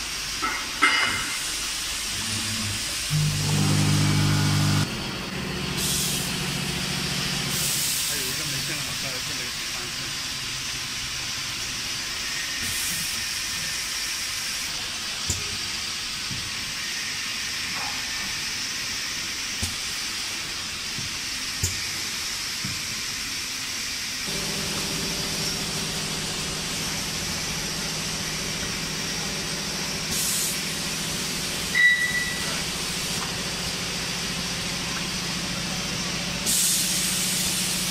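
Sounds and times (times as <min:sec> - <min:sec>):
pneumatic air hiss: 0:00.0 - 0:03.6, 0:05.8 - 0:06.8, 0:07.4 - 0:37.9
packaging machine running: 0:02.1 - 0:07.8, 0:24.3 - 0:34.6
low steady hum: 0:02.2 - 0:04.9.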